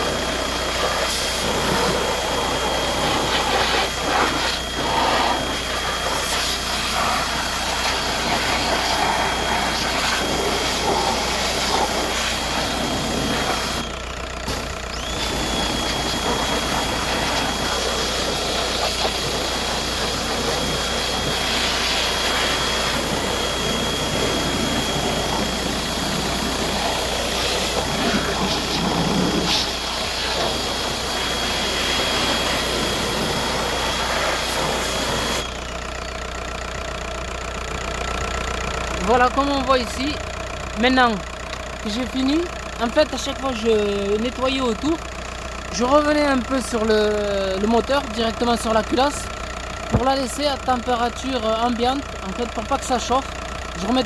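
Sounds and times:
pressure washer spraying: 0:00.0 - 0:13.8, 0:14.4 - 0:35.5
high whistle: 0:14.9 - 0:18.0.

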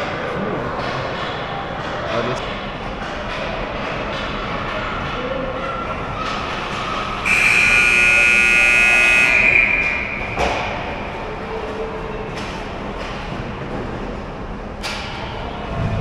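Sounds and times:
arena background noise: 0:00.0 - 0:16.0
game buzzer blare: 0:07.2 - 0:09.7.

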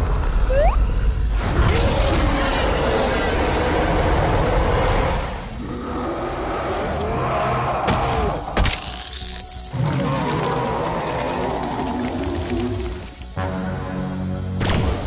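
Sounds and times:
music: 0:11.2 - 0:15.0.

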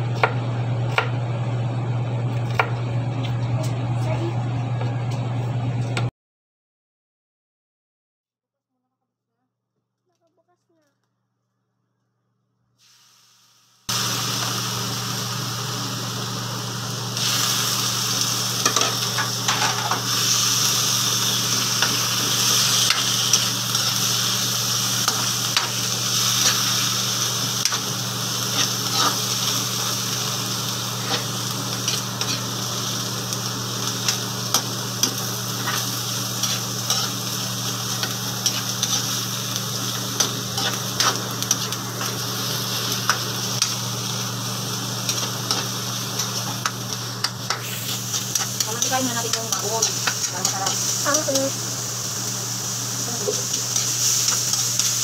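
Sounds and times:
meat sizzling in a wok: 0:12.8 - 0:55.0
spatula scraping a pan: 0:28.5 - 0:29.3.

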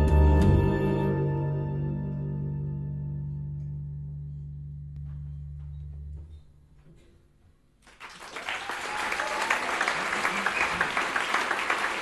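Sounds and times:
double bass: 0:00.0 - 0:07.0
audience applause: 0:07.8 - 0:12.0.

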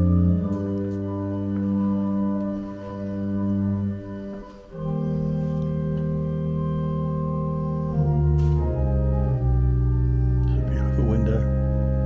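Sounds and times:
church organ chords: 0:00.0 - 0:12.0.

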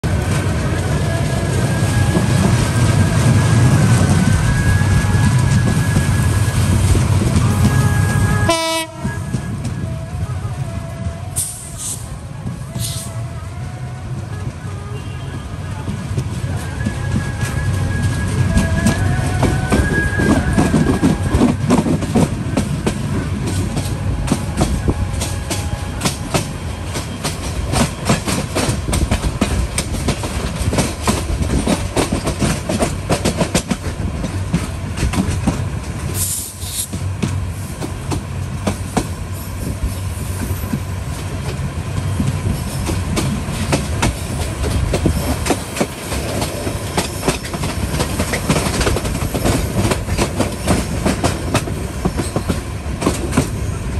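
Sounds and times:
train wheels clickety-clack: 0:00.0 - 0:13.3, 0:14.0 - 0:53.9.

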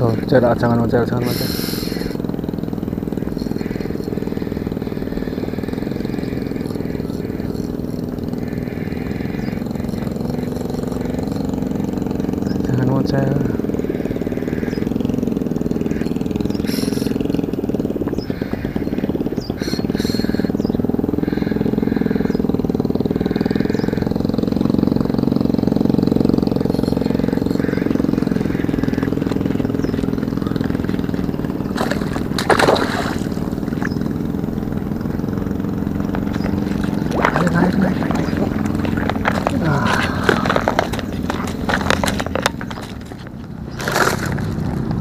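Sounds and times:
motor droning: 0:00.0 - 0:45.0
fish splashing in water: 0:30.0 - 0:35.3.

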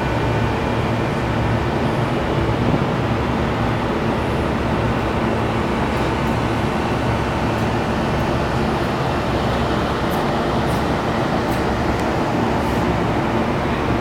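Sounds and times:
ship engines droning: 0:00.0 - 0:14.0.

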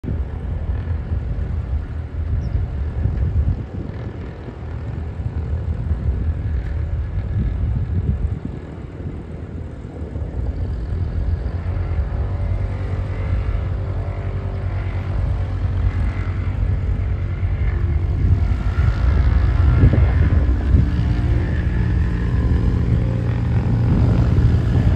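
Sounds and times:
aircraft engine idling: 0:00.0 - 0:24.9.

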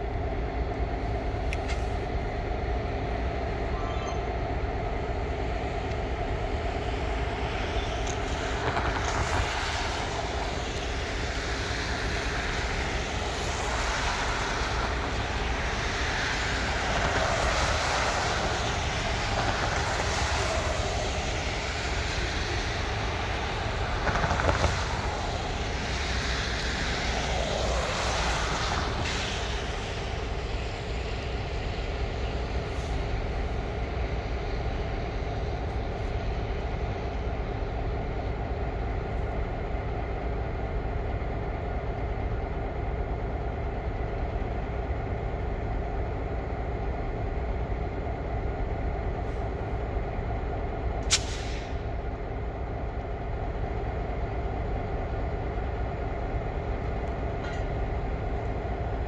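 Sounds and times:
diesel locomotive engine drone: 0:00.0 - 0:59.0
sharp click: 0:51.0 - 0:51.7.

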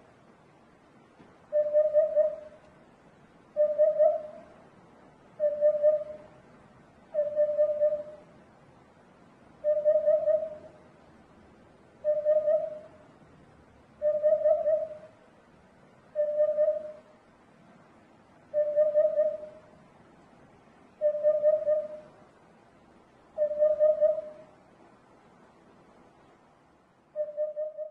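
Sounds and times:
hoopoe hooting song: 0:01.5 - 0:02.6, 0:03.6 - 0:04.5, 0:05.4 - 0:06.3, 0:07.1 - 0:08.2, 0:09.6 - 0:10.8, 0:12.0 - 0:13.0, 0:14.0 - 0:15.2, 0:16.1 - 0:17.1, 0:18.5 - 0:19.7, 0:21.0 - 0:22.2, 0:23.4 - 0:24.5.

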